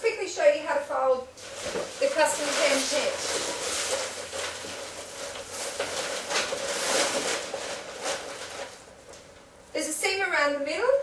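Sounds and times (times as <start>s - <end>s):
nylon fabric rustling: 1.4s - 9.2s.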